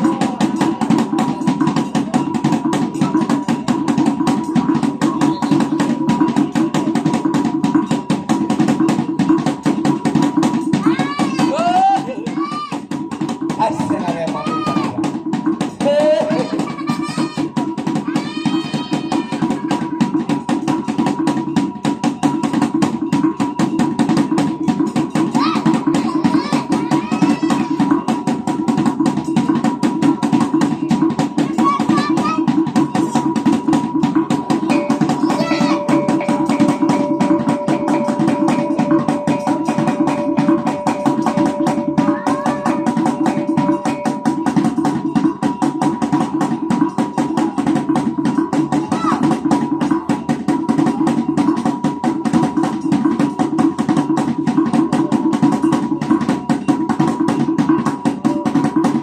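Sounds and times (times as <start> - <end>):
fast-beating drum: 0.0 - 59.0
small gongs struck rapidly: 0.0 - 59.0
large hanging gongs: 16.4 - 59.0.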